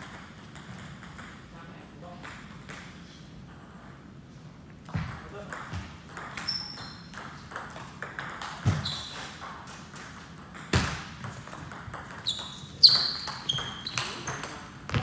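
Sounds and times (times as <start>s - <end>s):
shoes squeaking on wooden floor: 8.6s - 9.4s, 12.2s - 15.0s.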